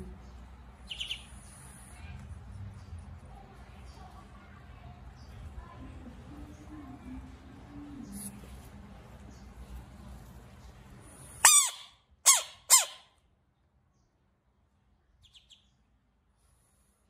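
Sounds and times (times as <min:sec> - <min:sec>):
faint high chirps: 0:00.8 - 0:01.7, 0:15.2 - 0:15.9.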